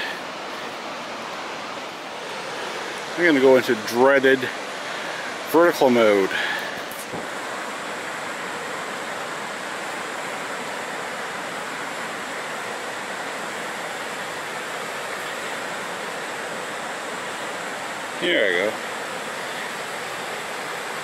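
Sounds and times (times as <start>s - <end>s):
waterfall and creek rushing: 0.0s - 21.0s.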